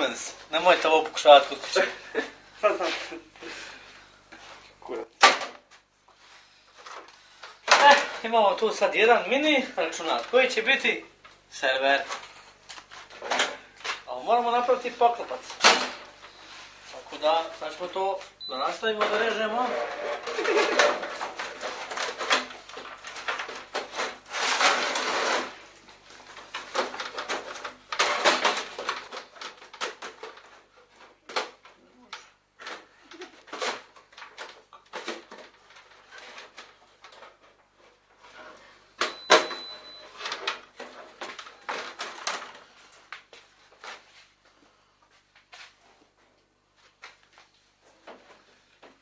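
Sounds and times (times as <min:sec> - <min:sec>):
sheet metal scraping and rattling: 0:19.4 - 0:22.6, 0:23.2 - 0:25.6.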